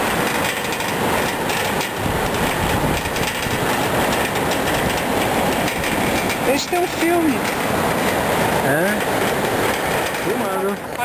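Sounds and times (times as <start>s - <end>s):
wind on microphone: 0.0s - 6.5s
cable car rattling along cable: 0.0s - 11.0s.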